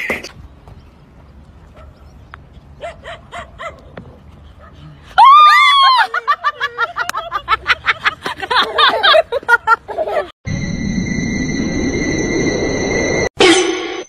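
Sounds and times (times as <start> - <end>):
person laughing hard: 5.8 - 10.3
electronic tone with hiss: 10.5 - 14.0.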